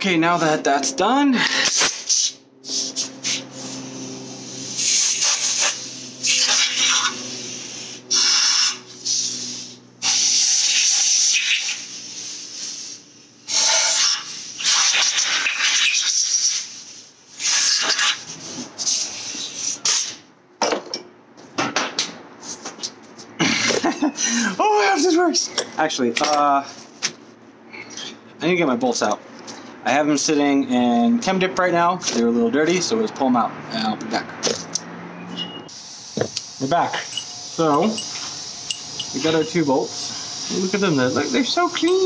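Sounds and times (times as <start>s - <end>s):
compressed air hissing bursts: 1.4s - 20.2s, 35.7s - 42.0s.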